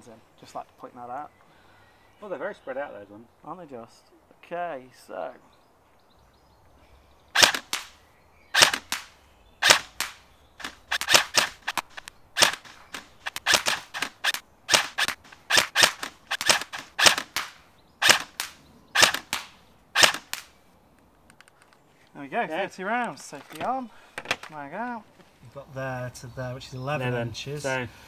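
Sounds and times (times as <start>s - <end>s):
airsoft rifle shots: 7.3s - 20.6s.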